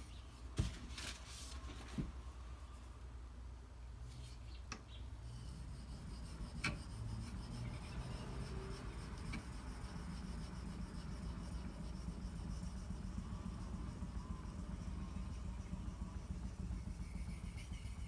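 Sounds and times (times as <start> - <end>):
blade scraping on whetstone: 5.2 - 12.9.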